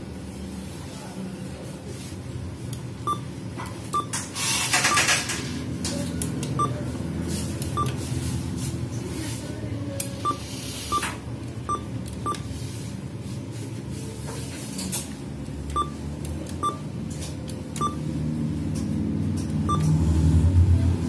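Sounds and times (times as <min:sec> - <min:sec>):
keypad beeps: 0:03.0 - 0:03.3, 0:03.9 - 0:05.2, 0:06.5 - 0:06.8, 0:07.7 - 0:08.0, 0:10.2 - 0:12.5, 0:15.7 - 0:16.9, 0:17.8 - 0:18.1, 0:19.6 - 0:20.0.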